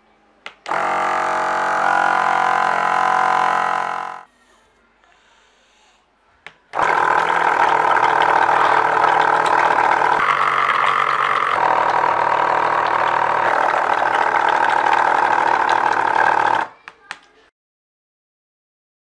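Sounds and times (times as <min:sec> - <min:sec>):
small motor whining: 0:00.7 - 0:04.3, 0:06.8 - 0:16.7.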